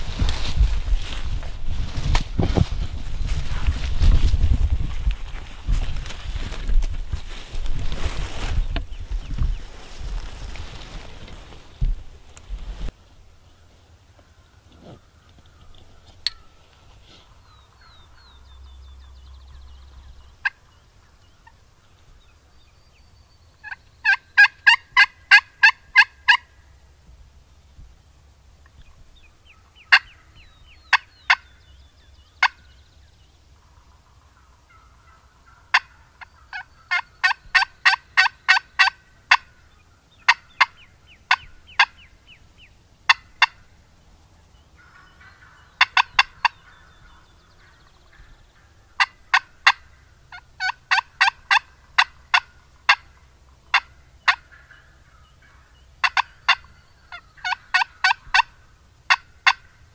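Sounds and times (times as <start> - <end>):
soft drawn-out turkey calls: 8.3 - 22.7, 23.6 - 27.0, 28.6 - 59.9
turkey clucking sharply: 23.6 - 26.5, 29.8 - 30.2, 34.0 - 39.6, 40.2 - 42.1, 43.1 - 43.6, 44.8 - 59.8.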